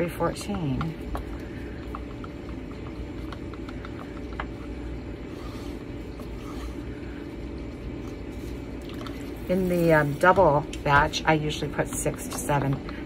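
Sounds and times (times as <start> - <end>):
low background hum: 0.0 - 13.0
stick stirring thick paint: 0.0 - 13.0.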